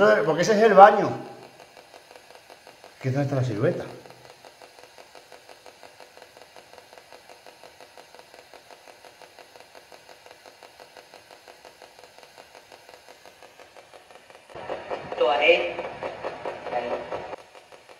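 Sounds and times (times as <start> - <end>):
radio static chopping: 0.0 - 17.9.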